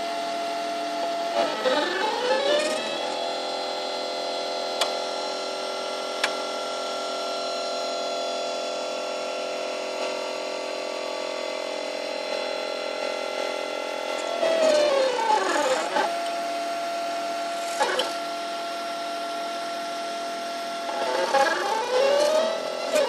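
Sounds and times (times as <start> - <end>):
stepper motors whining: 0.0 - 7.0, 12.3 - 23.0.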